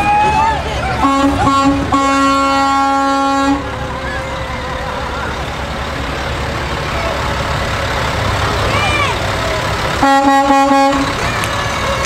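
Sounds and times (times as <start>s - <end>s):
truck engine rumbling: 0.0s - 12.0s
vehicle horn blast: 1.0s - 3.7s, 10.0s - 11.1s.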